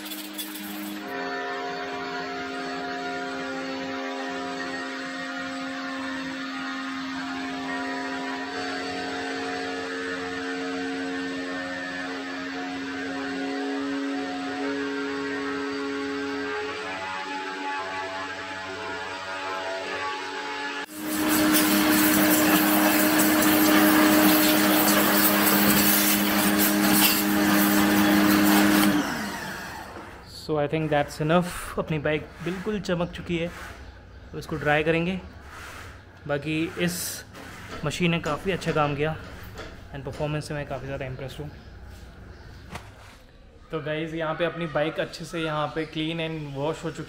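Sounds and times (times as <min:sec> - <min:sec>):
pressure washer motor hum: 0:00.0 - 0:40.9
water jet spraying: 0:20.9 - 0:28.9
pump motor humming: 0:20.9 - 0:30.3.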